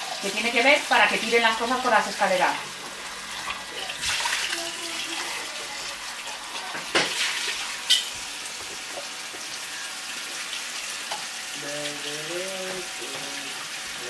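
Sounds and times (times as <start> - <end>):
tap running into sink: 6.6 - 9.5
dishes clattering: 6.7 - 9.1.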